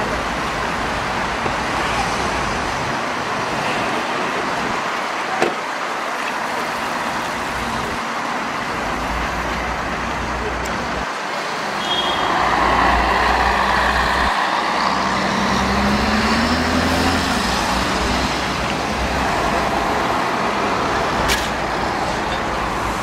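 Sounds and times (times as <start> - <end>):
road traffic noise: 0.0 - 23.0
bus driving past: 8.2 - 23.0.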